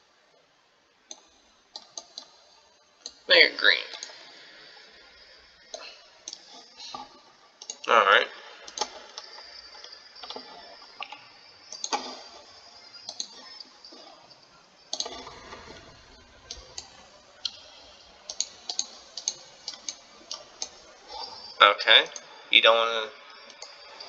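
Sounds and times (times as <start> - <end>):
computer mouse and keyboard clicks: 1.1 - 2.4, 8.7 - 14.1, 14.9 - 21.4.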